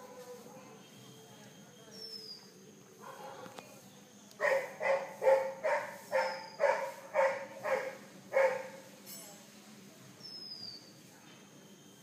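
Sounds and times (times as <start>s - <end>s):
dog barking: 3.0s - 3.5s, 4.4s - 8.8s.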